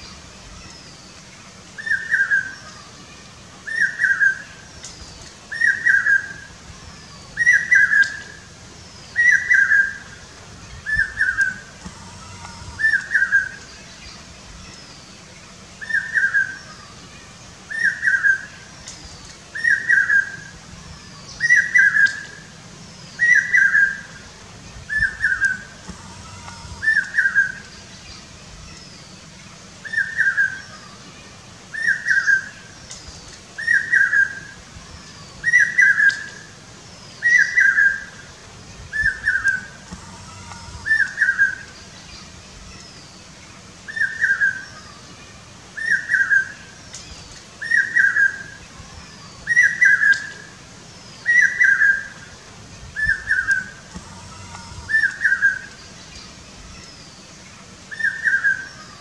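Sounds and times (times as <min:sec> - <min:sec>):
faint high bird calls: 0:00.0 - 0:59.0
shrill whistled bird calls: 0:05.0 - 0:10.2, 0:45.8 - 0:52.3, 0:57.9 - 0:59.0.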